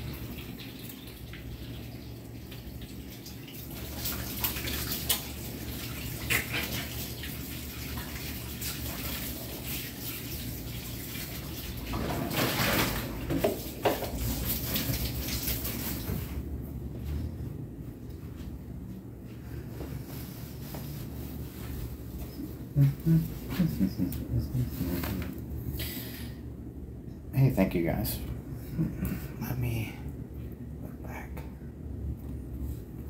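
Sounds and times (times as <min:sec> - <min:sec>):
tap water running and splashing: 0:00.0 - 0:16.3.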